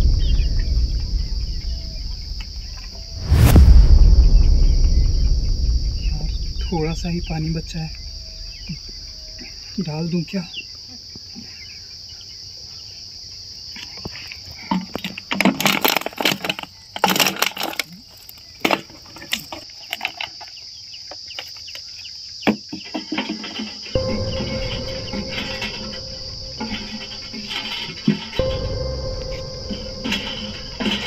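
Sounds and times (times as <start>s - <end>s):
steady held tone: 0.0s - 9.7s, 24.0s - 31.0s
low rumble: 0.0s - 9.8s, 24.0s - 31.0s
insects chirping: 0.0s - 31.0s.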